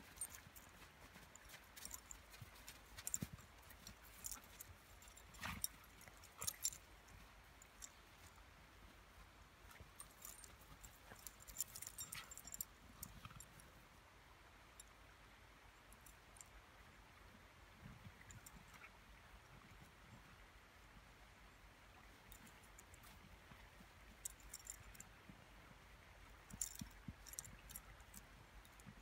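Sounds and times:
dog paws crunching in snow: 0.0s - 13.6s.

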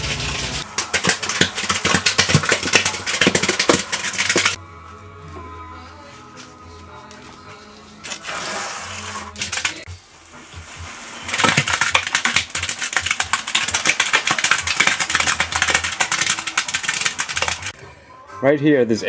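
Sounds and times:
wet cement pouring: 0.0s - 4.6s, 8.0s - 17.7s.

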